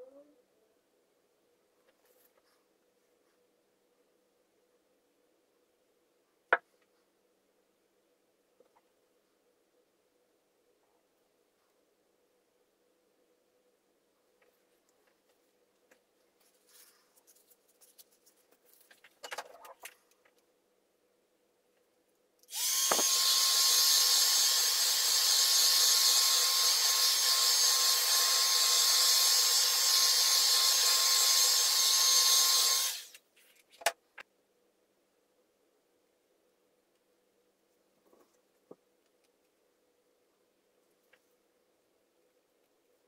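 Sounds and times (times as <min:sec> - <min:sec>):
hot-air gun fan whine: 0:22.5 - 0:33.2.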